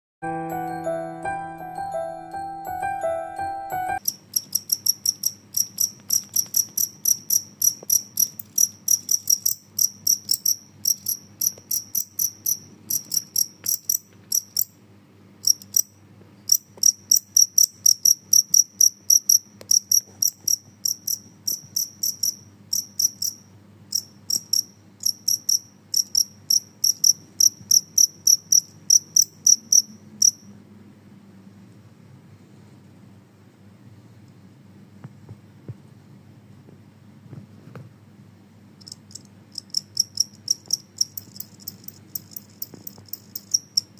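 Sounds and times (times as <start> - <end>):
cricket chirping: 4.0 - 14.8, 15.4 - 30.5, 38.8 - 43.9.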